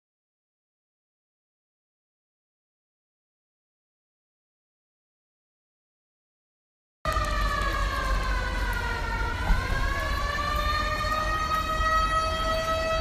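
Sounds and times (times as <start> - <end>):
siren wailing: 7.1 - 13.0.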